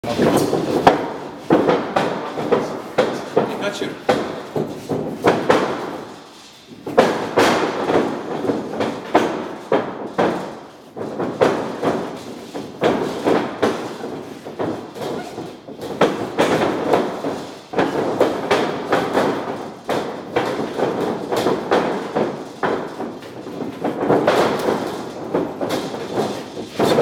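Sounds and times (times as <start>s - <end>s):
feet thumping on ring canvas: 0.0s - 27.0s
gloved punches and kicks landing: 0.1s - 27.0s.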